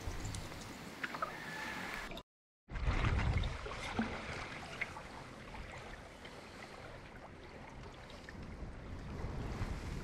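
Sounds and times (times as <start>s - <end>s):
water lapping against canoe: 2.7s - 10.0s
wind rumbling on microphone: 7.3s - 10.0s.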